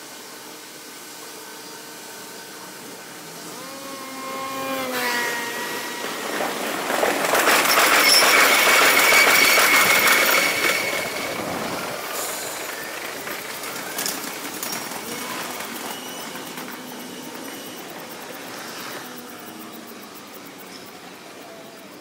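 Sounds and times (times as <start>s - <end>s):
electric train rumble and clatter: 0.0s - 22.0s
high wheel squeal: 3.6s - 21.4s.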